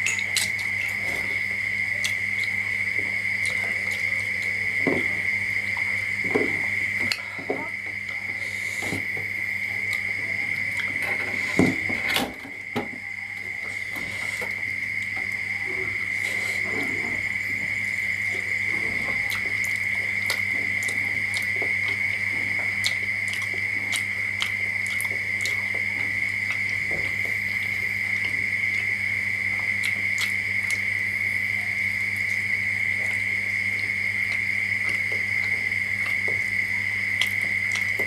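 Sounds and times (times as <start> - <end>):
high-pitched whine: 0.0 - 21.7.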